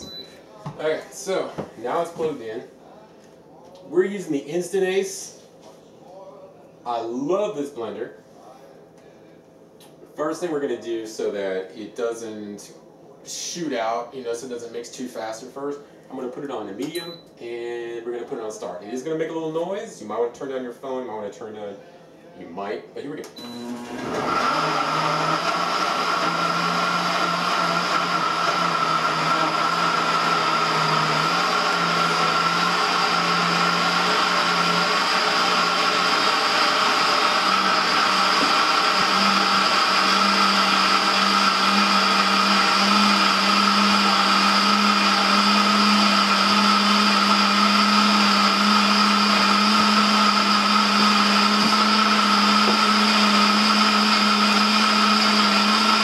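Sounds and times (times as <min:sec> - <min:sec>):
blender motor hum: 0:23.4 - 0:56.0.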